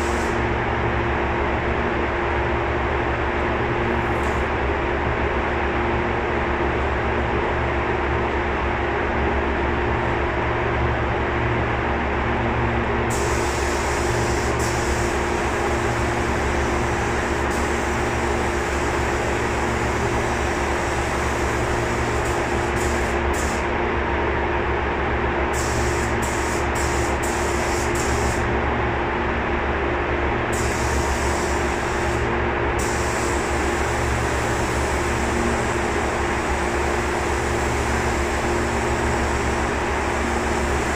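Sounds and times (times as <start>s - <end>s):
spray gun hissing bursts: 13.1s - 23.6s, 25.6s - 28.4s, 30.6s - 32.2s, 32.8s - 40.9s.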